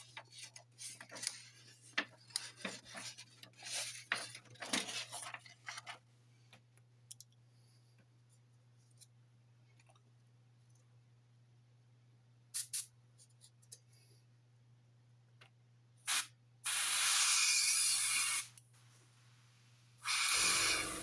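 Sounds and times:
low steady hum: 0:00.0 - 0:16.6
airbrush clicking and hissing: 0:12.6 - 0:12.9, 0:16.1 - 0:18.6, 0:20.0 - 0:21.0.

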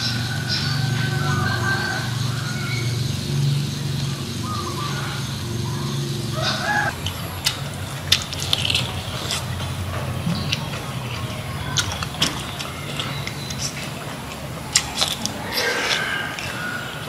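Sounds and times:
chickens clucking: 0:00.0 - 0:17.0
person chewing: 0:06.9 - 0:09.7, 0:11.7 - 0:17.0.

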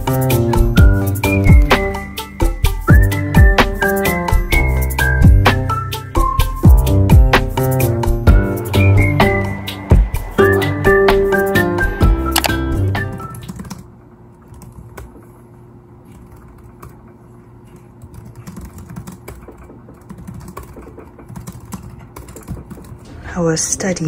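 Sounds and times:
background music: 0:00.0 - 0:13.6
laptop keyboard typing: 0:12.3 - 0:15.2, 0:16.1 - 0:17.1, 0:17.7 - 0:23.1.

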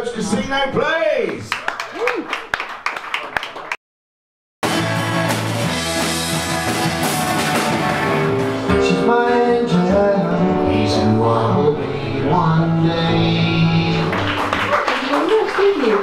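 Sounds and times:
live rock band playing: 0:04.6 - 0:12.2
man singing with guitar: 0:08.7 - 0:14.2.

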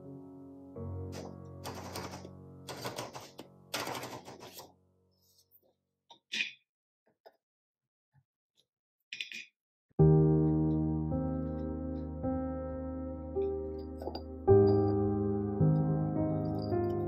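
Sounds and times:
soft music with sustained notes: 0:00.0 - 0:05.4, 0:10.0 - 0:17.0
manual typewriter rasping: 0:01.6 - 0:04.7.

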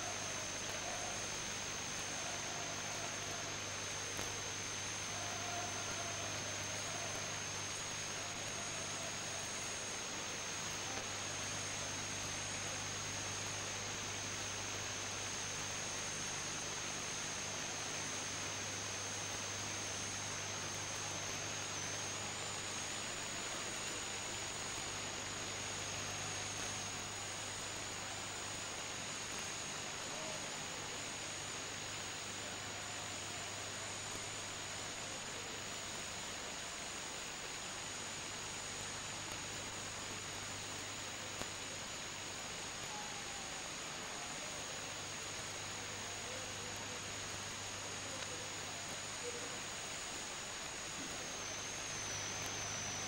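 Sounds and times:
faint indistinct crowd voices: 0:00.0 - 0:13.6
high-pitched whine: 0:00.0 - 0:53.0
low mains hum: 0:00.0 - 0:53.0
tape hiss: 0:00.0 - 0:53.0.

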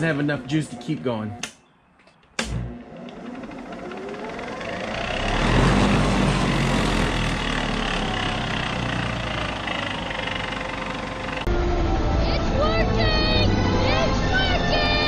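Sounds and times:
milling machine motor whining: 0:00.0 - 0:01.5, 0:02.4 - 0:11.5.

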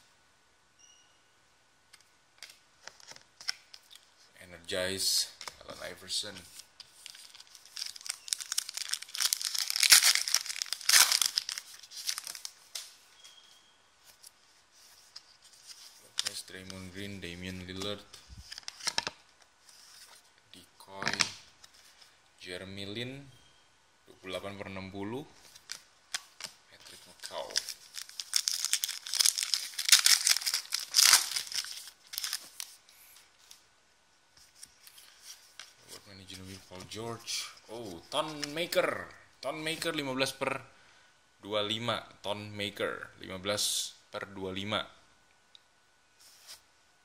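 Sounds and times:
cards rustling and clicking: 0:01.9 - 0:04.1, 0:05.4 - 0:13.0, 0:17.7 - 0:20.2, 0:25.4 - 0:33.6, 0:37.8 - 0:38.7
plastic wrapper tearing and crinkling: 0:06.8 - 0:13.0, 0:25.5 - 0:32.8.

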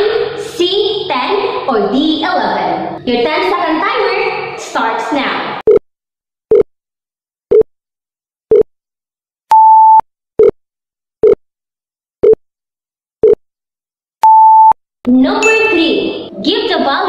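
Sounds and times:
timer beep: 0:09.5 - 0:10.6, 0:14.2 - 0:14.8, 0:15.4 - 0:16.4.

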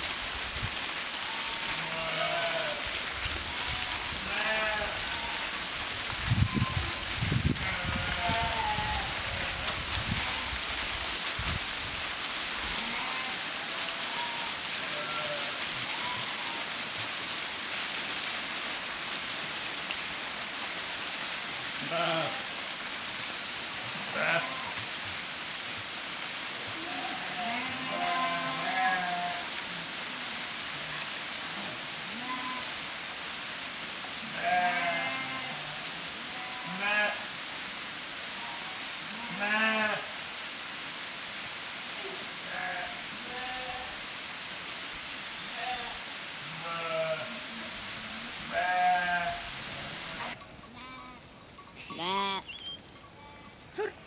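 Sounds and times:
hooves shuffling through leaves: 0:00.0 - 0:54.0
steady background hiss: 0:00.0 - 0:54.0
sheep bleating: 0:01.3 - 0:02.8, 0:03.5 - 0:05.5, 0:12.8 - 0:16.4, 0:24.0 - 0:24.8, 0:26.8 - 0:29.4, 0:34.3 - 0:35.7, 0:38.4 - 0:40.1, 0:42.5 - 0:43.9, 0:45.5 - 0:47.4, 0:48.4 - 0:51.2, 0:51.8 - 0:52.5.

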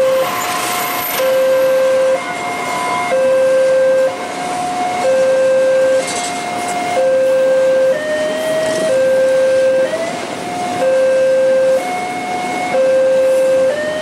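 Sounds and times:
freight train rumbling past: 0:00.0 - 0:10.8
two-tone level crossing alarm: 0:00.0 - 0:14.0.

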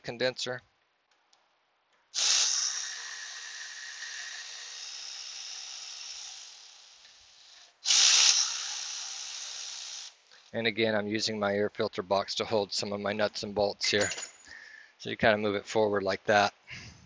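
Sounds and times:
air ratchet running: 0:02.2 - 0:10.6.

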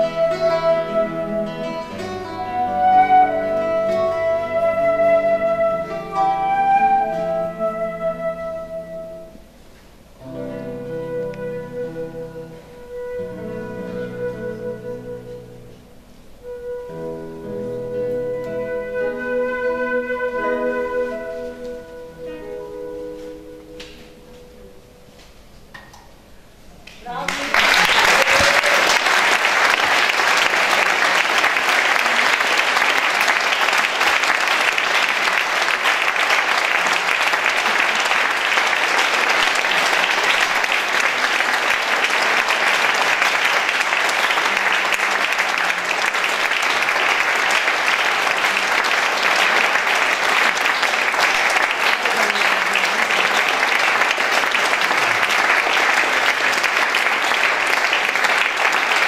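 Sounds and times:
audience applauding: 0:27.1 - 0:59.0.

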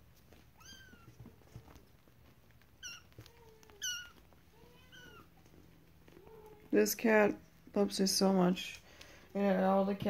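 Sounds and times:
kittens mewing: 0:02.8 - 0:06.7.

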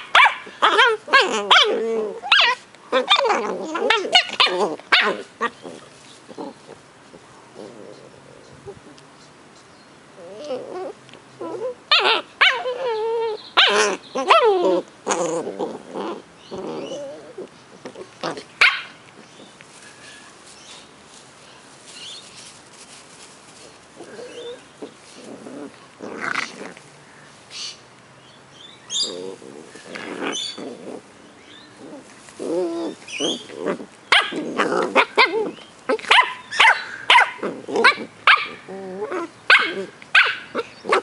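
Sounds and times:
puppies whining and growling: 0:00.0 - 0:09.0, 0:10.2 - 0:18.5, 0:24.0 - 0:26.8, 0:28.9 - 0:41.0
puppies yapping: 0:32.6 - 0:41.0.

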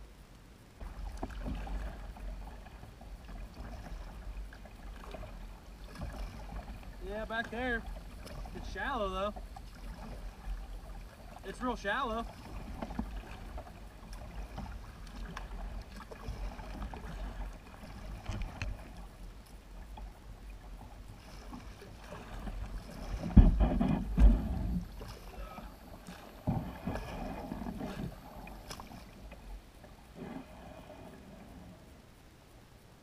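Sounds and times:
paddle splashing in water: 0:00.8 - 0:32.0
heavy thumps on kayak hull: 0:21.4 - 0:28.8.

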